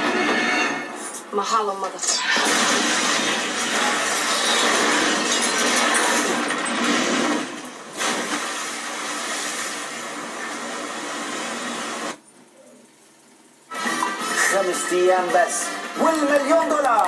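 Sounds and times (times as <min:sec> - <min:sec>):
explosion and fire soundtrack: 0:02.3 - 0:12.2.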